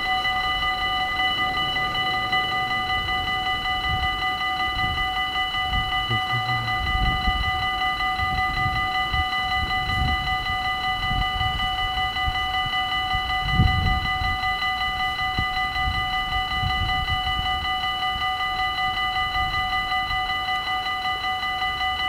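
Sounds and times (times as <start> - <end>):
low rumble: 0.0 - 7.3
level crossing warning bell: 0.0 - 22.0.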